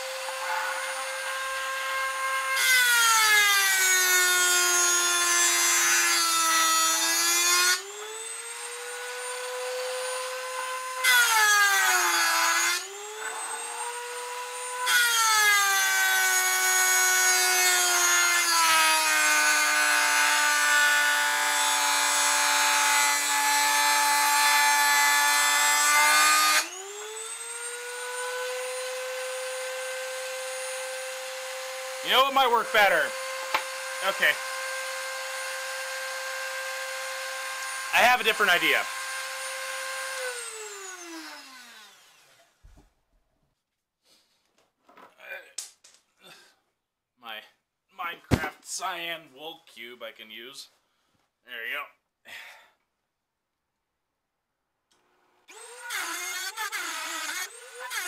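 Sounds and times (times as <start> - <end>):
rotary tool whine: 7.8 - 11.4, 12.8 - 16.0, 26.6 - 42.6, 55.5 - 58.0
cut-off wheel grinding metal: 55.5 - 58.0.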